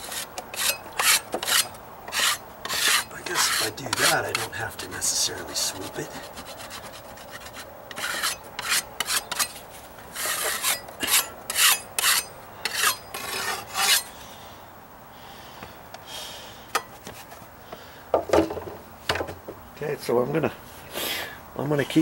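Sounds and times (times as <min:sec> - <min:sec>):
hand tool scraping filler: 0:00.0 - 0:04.6, 0:05.6 - 0:09.6, 0:10.2 - 0:14.1.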